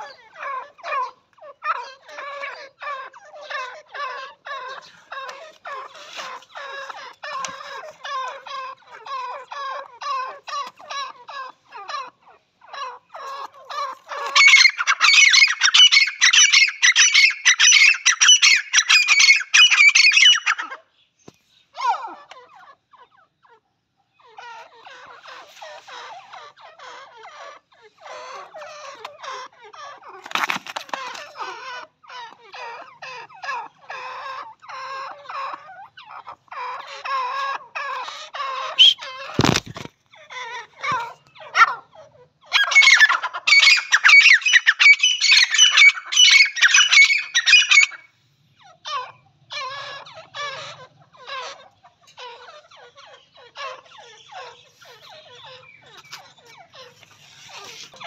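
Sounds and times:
francolins calling: 0:00.0 - 0:58.0.

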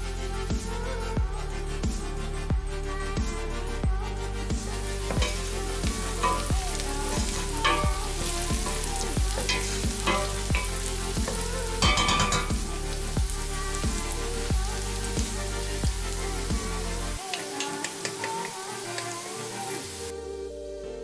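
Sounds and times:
background music with a beat: 0:00.0 - 0:19.4
onions sizzling in butter: 0:04.9 - 0:20.1.

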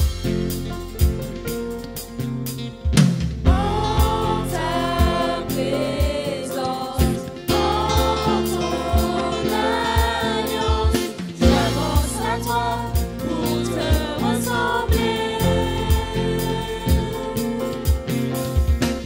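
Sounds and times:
band playing: 0:00.0 - 0:19.0
bass: 0:00.0 - 0:19.0
steady drum beat: 0:00.0 - 0:19.0
choir singing: 0:03.5 - 0:18.2.

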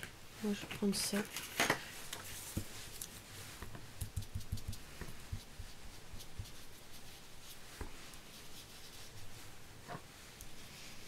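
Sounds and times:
light rubbing of paper: 0:01.4 - 0:11.0
ink pad tapping on paper: 0:03.6 - 0:05.7.

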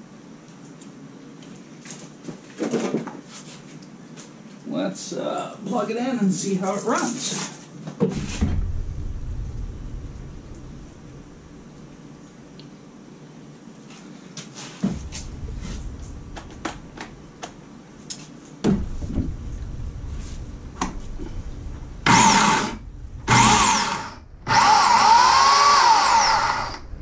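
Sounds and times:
electric chainsaw whining: 0:22.0 - 0:26.9.

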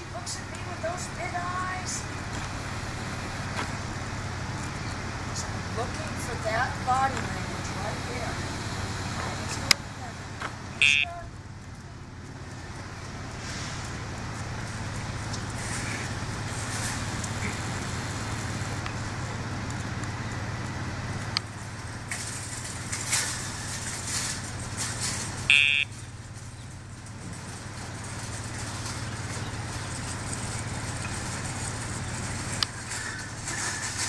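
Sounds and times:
car traffic hum: 0:00.0 - 0:34.0
short high electronic beep: 0:10.8 - 0:11.1, 0:25.5 - 0:25.9.

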